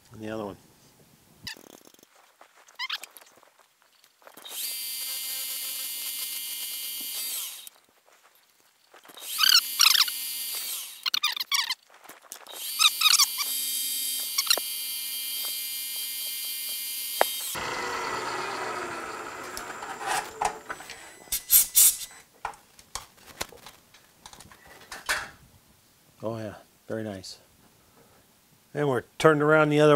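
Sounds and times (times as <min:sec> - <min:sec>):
drill bit squealing: 0:15.3 - 0:22.2
milling spindle whining: 0:15.3 - 0:22.2.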